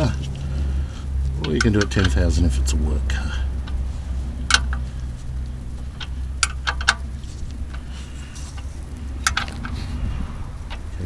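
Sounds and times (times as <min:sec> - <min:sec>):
low steady hum: 0:00.0 - 0:11.0
spanner ticking on drain plug: 0:00.0 - 0:11.0.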